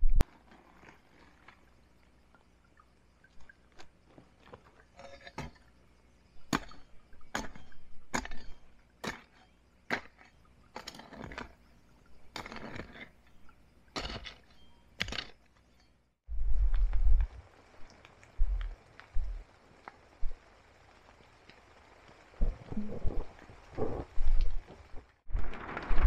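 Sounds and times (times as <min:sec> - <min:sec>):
hoe scraping soil: 0:10.8 - 0:11.6, 0:12.3 - 0:13.4, 0:14.0 - 0:15.4.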